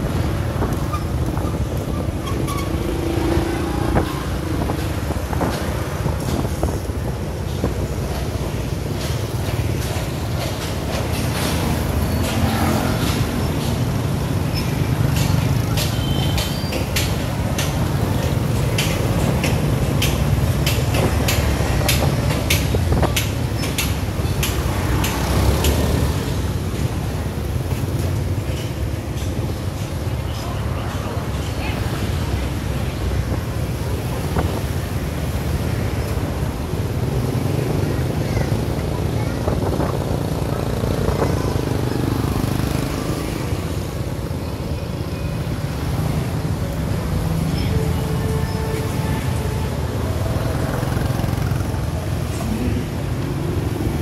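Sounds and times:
motorbike and scooter engines: 0.0s - 54.0s
road noise: 0.0s - 54.0s.

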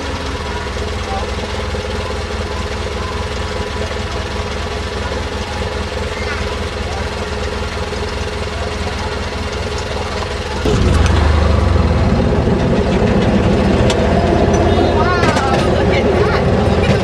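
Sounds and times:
small train engine running: 0.0s - 17.0s.

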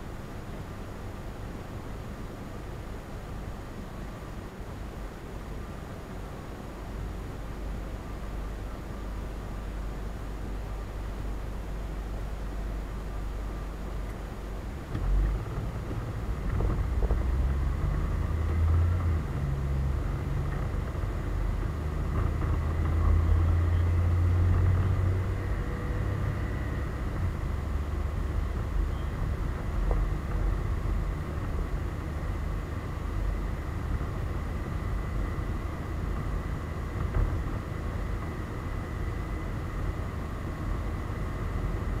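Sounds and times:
wind rumble on microphone: 14.7s - 42.0s.

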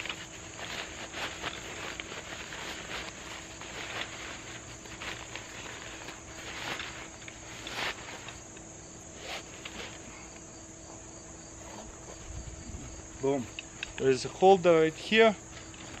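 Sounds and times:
fabric bag rustling: 0.0s - 8.4s, 9.1s - 10.2s
insects trilling: 0.0s - 16.0s.

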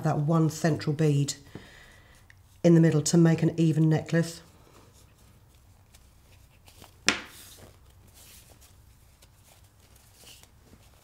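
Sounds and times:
fabric rustling: 4.4s - 11.0s.

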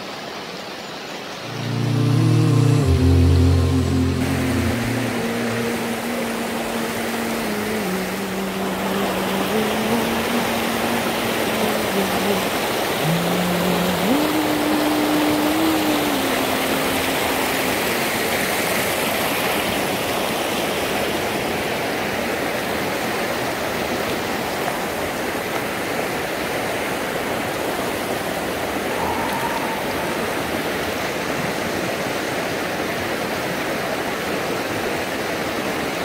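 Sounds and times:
river rushing over rocks: 0.0s - 36.0s.

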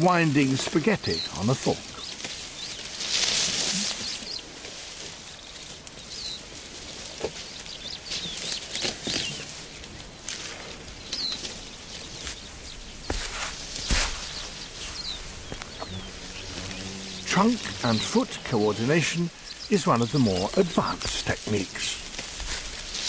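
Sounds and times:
grass stalks rustling and tearing: 0.1s - 23.0s
bird chirps: 5.4s - 22.1s.

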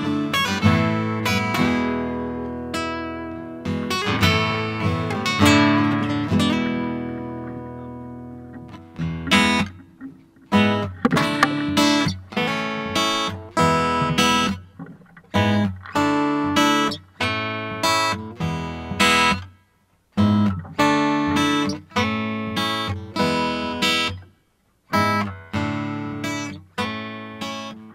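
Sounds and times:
acoustic guitar strumming chords: 0.0s - 27.9s.

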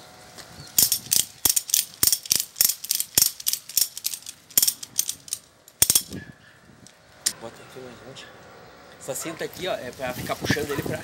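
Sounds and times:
ratchet strap clicking: 0.8s - 6.2s.

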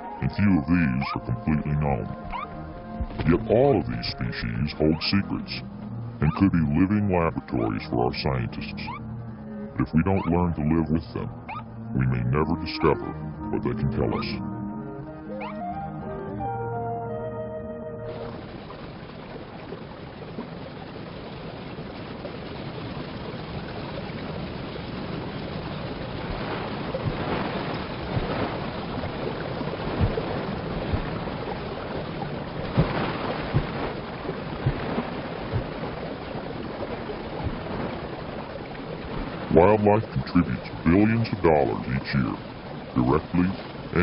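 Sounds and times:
rushing river water: 0.0s - 44.0s
horses splashing through water: 18.3s - 44.0s.

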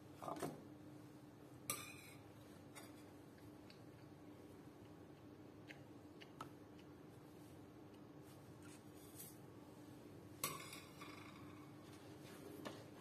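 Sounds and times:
faint steady hum: 0.0s - 13.0s
soft scrapes: 8.3s - 9.4s.

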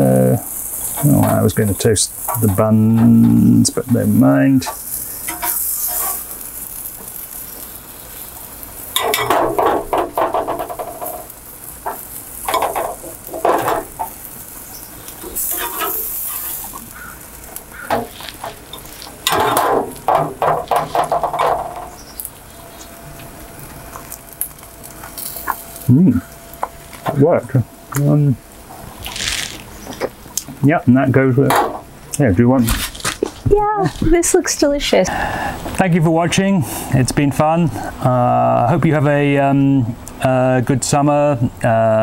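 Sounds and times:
metal spatula scraping grill grate: 0.0s - 27.4s, 28.7s - 30.1s
food sizzling on grill: 0.0s - 42.0s.

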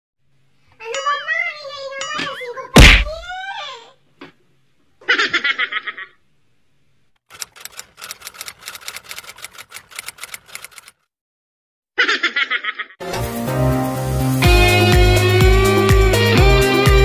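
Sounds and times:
burst of laughter: 5.0s - 6.2s, 12.0s - 13.0s
typewriter key clicks: 7.3s - 11.0s.

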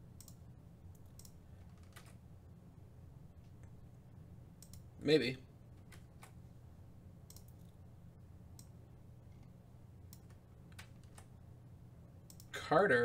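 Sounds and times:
low steady hum: 0.0s - 13.0s
mouse and keyboard clicks: 1.0s - 2.2s, 7.3s - 7.7s.

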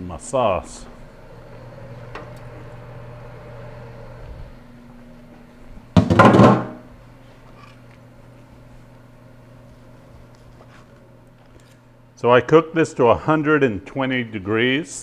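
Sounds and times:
steady low hum: 0.0s - 15.0s
kitchenware knock and clatter: 6.0s - 6.8s.

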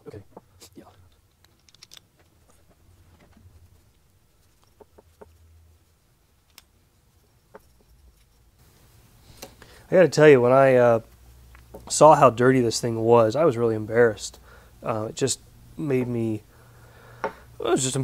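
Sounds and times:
small metal parts clicking: 1.1s - 2.2s.

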